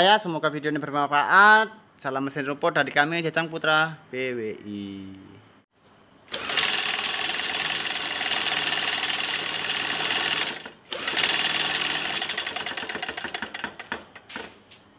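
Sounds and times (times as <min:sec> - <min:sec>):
brush-cutter engine clattering: 0:06.3 - 0:14.6.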